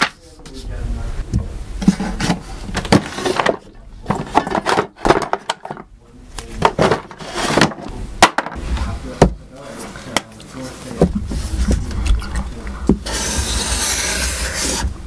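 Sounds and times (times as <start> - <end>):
wooden drawer rummaged through: 1.8 - 5.8, 6.6 - 7.9.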